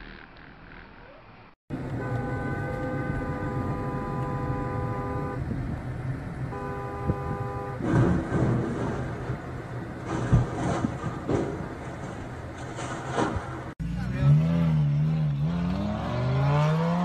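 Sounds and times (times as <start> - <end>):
road noise inside car: 1.1 - 17.0
car horn: 1.7 - 5.6, 6.4 - 8.2.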